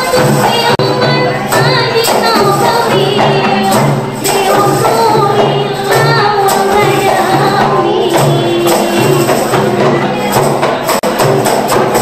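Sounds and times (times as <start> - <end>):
woman singing into microphone: 0.0 - 10.1
frame drums beating: 0.0 - 12.0.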